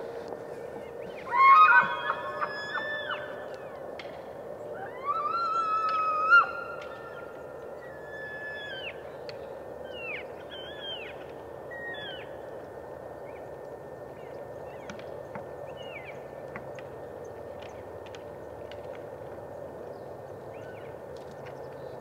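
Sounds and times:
elk whistling calls: 0:00.8 - 0:03.9, 0:04.7 - 0:09.1.

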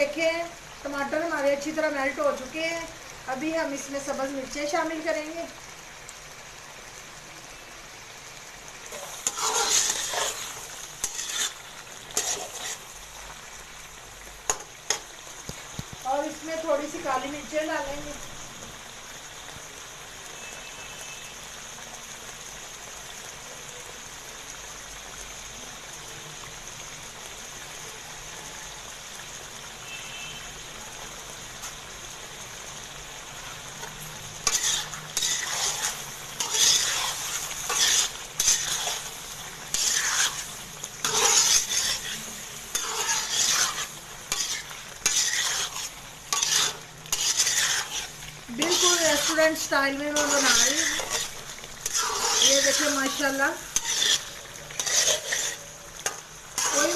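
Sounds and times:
chicken sizzling in pan: 0:00.0 - 0:56.9
metal spatula scraping pan: 0:08.9 - 0:12.9, 0:33.8 - 0:56.9.

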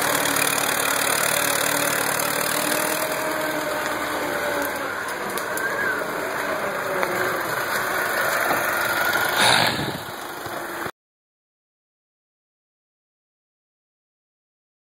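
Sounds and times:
tractor diesel engine driving past: 0:00.0 - 0:10.9.

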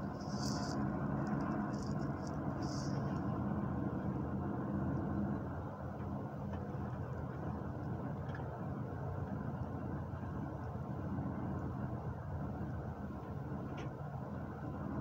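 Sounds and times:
short hissy sounds: 0:00.0 - 0:03.2
bus engine and road rumble: 0:00.0 - 0:15.0.

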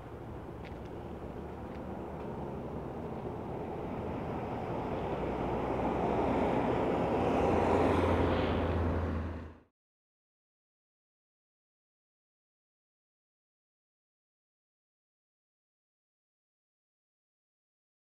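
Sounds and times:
cars passing: 0:00.0 - 0:09.7
low engine hum: 0:00.0 - 0:09.7
road and wind noise: 0:00.0 - 0:09.7.

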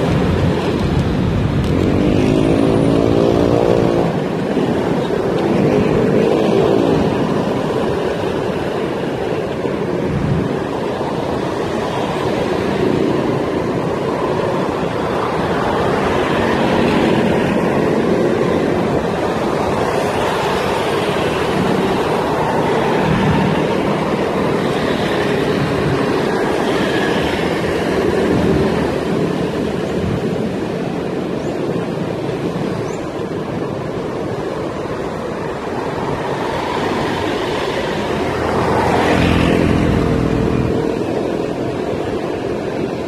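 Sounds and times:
street traffic rush: 0:00.0 - 0:43.0.

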